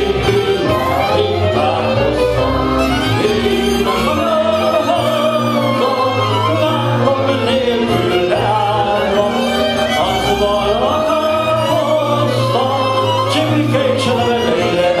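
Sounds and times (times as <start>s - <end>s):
man singing into microphone: 0.0s - 15.0s
violin and band accompaniment: 0.0s - 15.0s.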